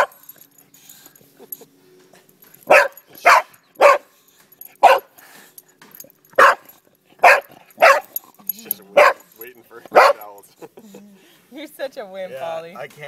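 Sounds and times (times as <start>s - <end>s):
dog barking: 2.7s - 4.1s, 4.8s - 5.1s, 6.4s - 8.2s, 8.9s - 9.3s, 9.9s - 10.3s.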